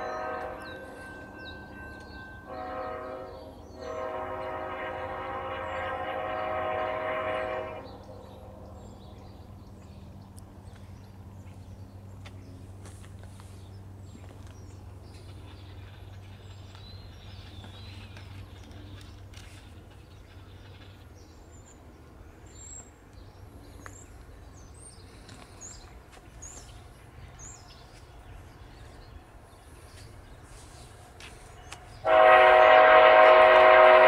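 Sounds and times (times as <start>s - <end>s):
birds chirping: 0.0s - 12.6s
diesel locomotive rumble: 0.0s - 34.0s.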